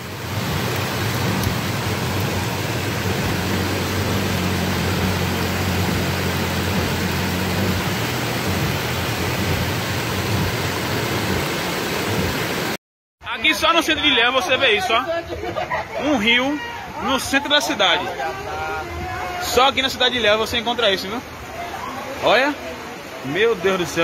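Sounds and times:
motorcycle engine droning: 0.0s - 11.4s
heavy rain pouring: 0.0s - 12.8s, 13.4s - 24.0s.

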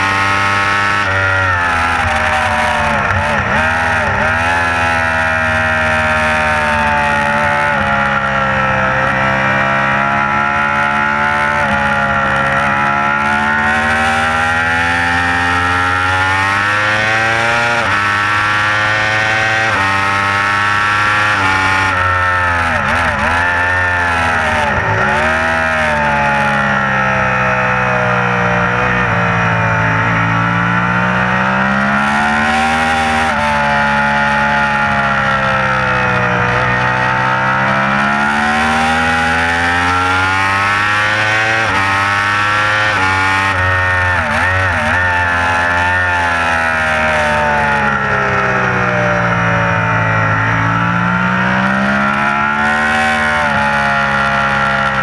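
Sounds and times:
motorcycle engine shifting gears: 0.0s - 55.0s.

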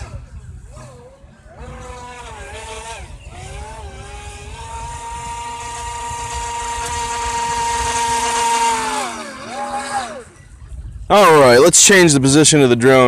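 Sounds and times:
electric motor whining: 0.0s - 10.8s.

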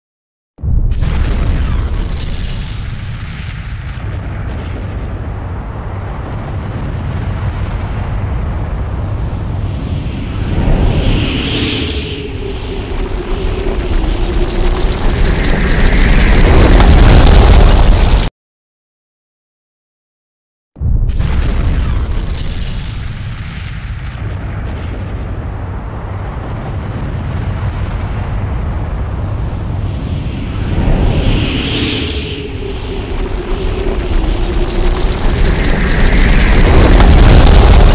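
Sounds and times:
explosion deep rumble: 0.6s - 18.3s, 20.8s - 37.9s
hissing roar: 10.0s - 18.2s, 30.2s - 37.9s.

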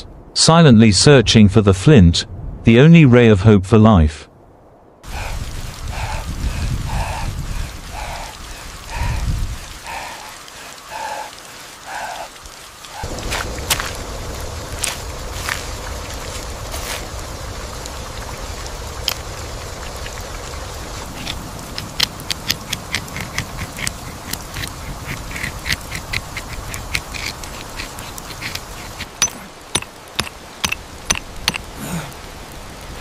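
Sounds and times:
rain hissing: 4.4s - 33.0s
flint stones striking: 21.2s - 31.7s.

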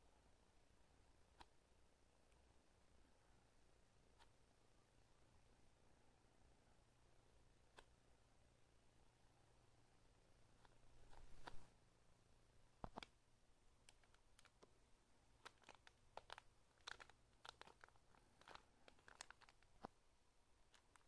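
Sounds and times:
plastic bag crinkling: 13.8s - 14.7s, 15.4s - 19.9s, 20.7s - 21.0s.

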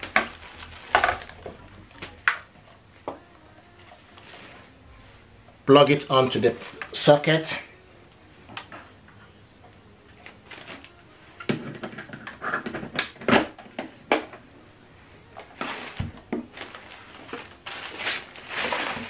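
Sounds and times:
plastic bags rustling: 0.0s - 2.8s, 3.7s - 7.7s, 10.1s - 12.8s, 15.2s - 19.0s.

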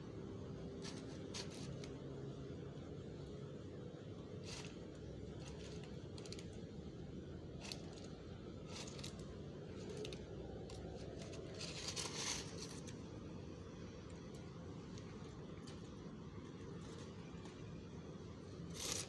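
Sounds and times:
low background noise: 0.0s - 19.0s
small clicks and scrapes: 0.7s - 2.0s, 4.4s - 6.7s, 7.6s - 13.0s, 14.1s - 17.7s, 18.6s - 19.0s
plastic bag crinkling: 7.6s - 13.0s, 18.6s - 19.0s.

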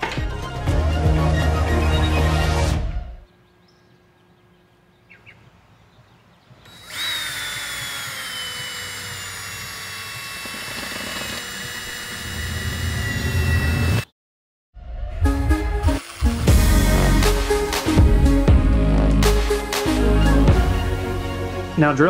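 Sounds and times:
drill motor whine: 6.7s - 14.1s, 15.8s - 17.1s.

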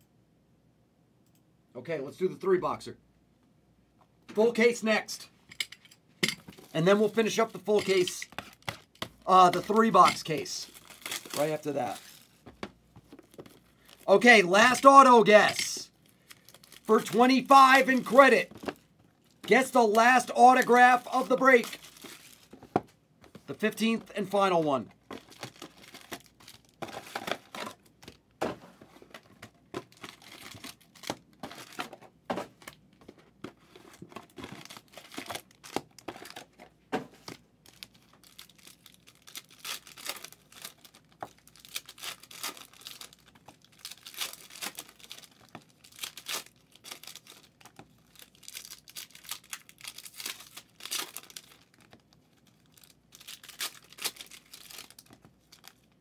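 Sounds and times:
card pack wrappers crinkling: 6.5s - 28.2s, 29.0s - 56.0s.

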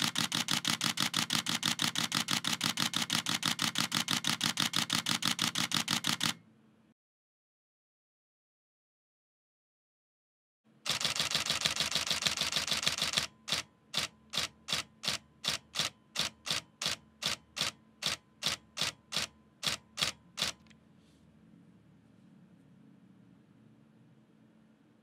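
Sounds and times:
camera shutter burst: 0.0s - 6.4s, 10.9s - 20.7s.

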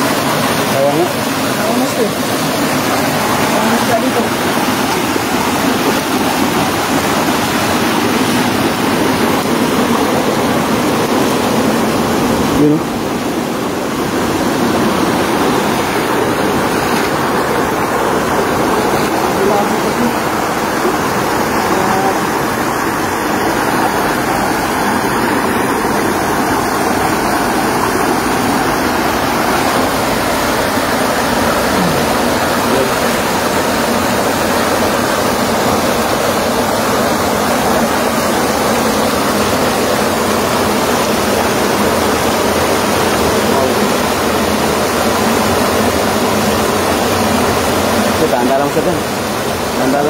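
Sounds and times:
water rushing: 0.0s - 50.0s.

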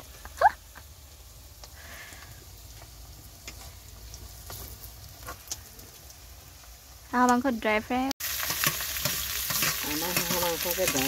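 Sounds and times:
onions sizzling in a wok: 0.0s - 11.0s.

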